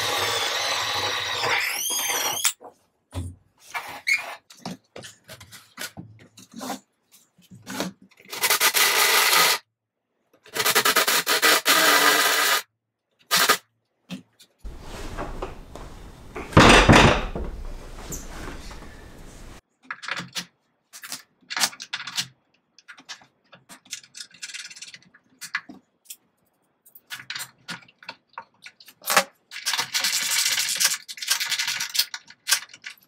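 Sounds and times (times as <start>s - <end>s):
heavy door scraping and rumbling: 14.7s - 19.6s.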